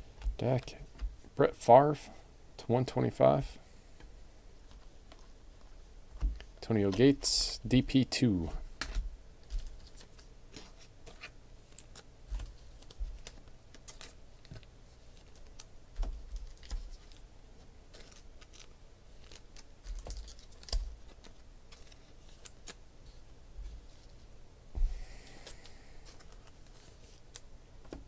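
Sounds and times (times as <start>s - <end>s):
cards clicking and tapping: 8.8s - 17.2s, 17.9s - 22.8s, 25.3s - 28.0s.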